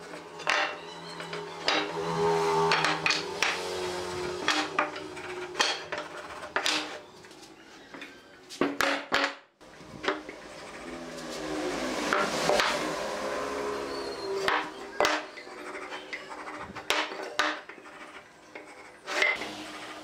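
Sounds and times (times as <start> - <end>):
wood sliding and rubbing: 0.4 - 8.0.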